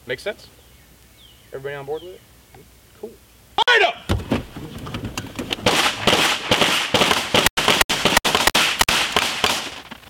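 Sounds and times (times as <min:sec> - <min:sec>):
rapid handgun fire: 0:05.6 - 0:09.8.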